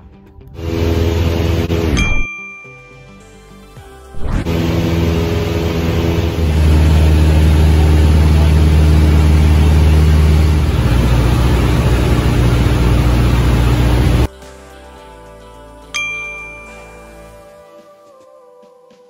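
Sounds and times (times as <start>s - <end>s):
airplane engine and propeller drone: 0.6s - 1.9s, 4.2s - 14.3s.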